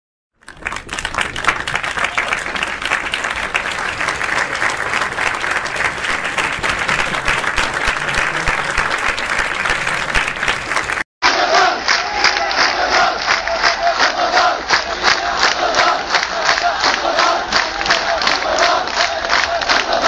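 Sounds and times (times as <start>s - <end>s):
large crowd applauding: 0.4s - 20.0s.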